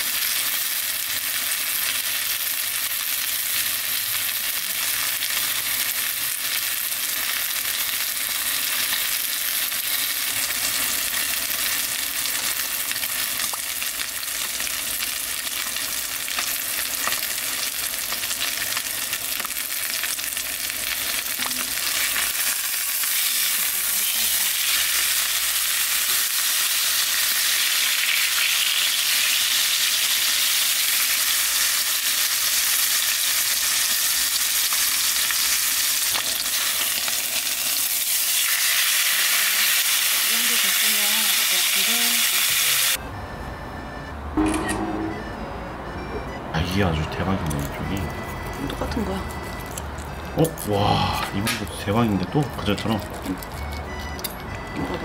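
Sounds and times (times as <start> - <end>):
steak sizzling in a frying pan: 0.0 - 43.0.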